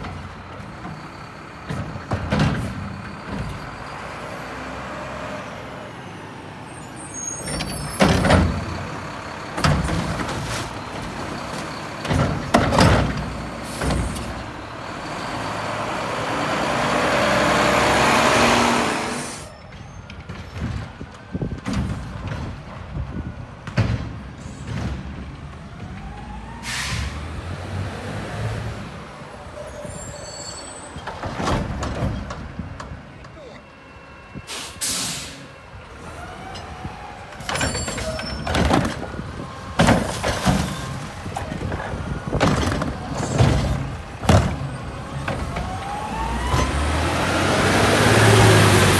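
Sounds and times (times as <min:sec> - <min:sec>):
cart bangs and clanks: 0:00.0 - 0:03.8, 0:07.4 - 0:08.9, 0:09.5 - 0:14.5, 0:19.6 - 0:25.9, 0:30.9 - 0:33.0, 0:37.4 - 0:45.8
garbage truck engine rushing: 0:00.0 - 0:48.9
air brakes hiss: 0:26.6 - 0:27.2, 0:34.4 - 0:35.5.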